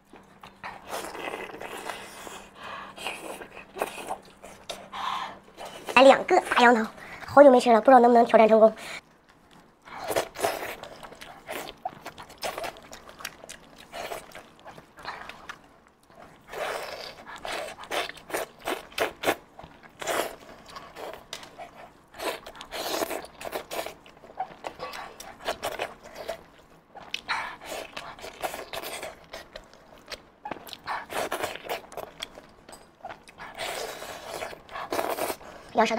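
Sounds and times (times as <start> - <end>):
meat being torn and chewed: 9.0 - 35.6.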